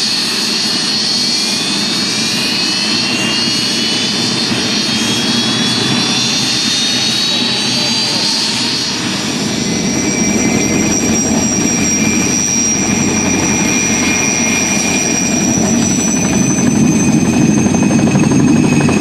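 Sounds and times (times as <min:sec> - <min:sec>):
helicopter rotor chop: 0:00.0 - 0:19.0
helicopter turbine whine: 0:00.0 - 0:19.0.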